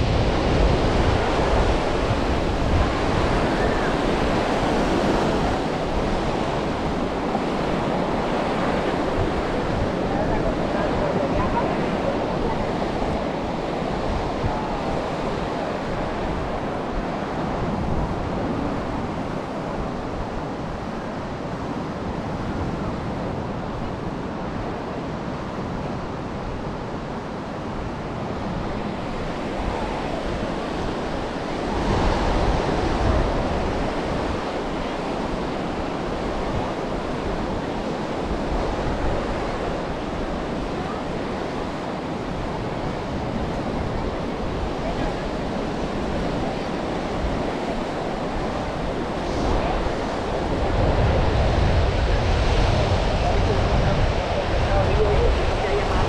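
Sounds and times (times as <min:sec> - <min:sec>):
wave breaking: 0:00.0 - 0:22.2, 0:27.9 - 0:56.0
sea surf washing onto beach: 0:00.0 - 0:56.0
wind rumbling on microphone: 0:00.0 - 0:56.0.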